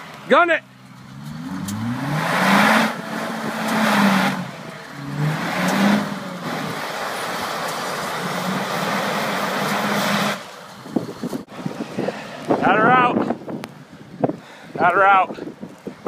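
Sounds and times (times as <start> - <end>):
car engine revving: 0.5 - 13.6
tyres spinning in snow: 0.7 - 11.8.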